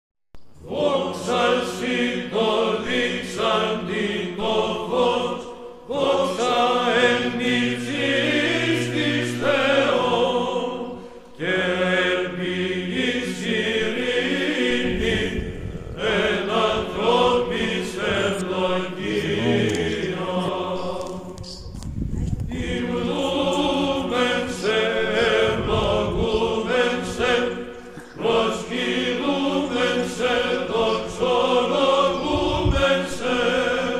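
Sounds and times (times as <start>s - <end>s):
choir chanting: 0.6s - 21.7s, 22.5s - 33.9s
low drone note: 8.4s - 10.4s.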